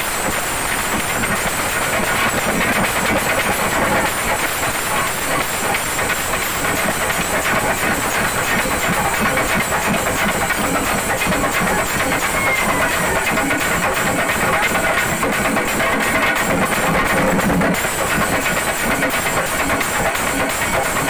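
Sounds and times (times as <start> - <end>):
drums beaten with sticks: 0.0 - 21.0.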